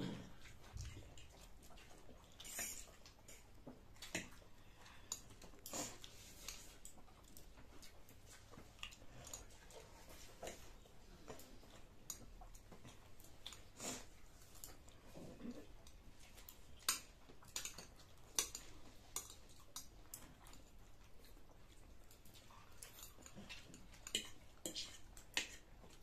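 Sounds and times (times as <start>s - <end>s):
chewing food: 0.0s - 26.0s
cutlery clicking and scraping plates: 16.8s - 20.2s.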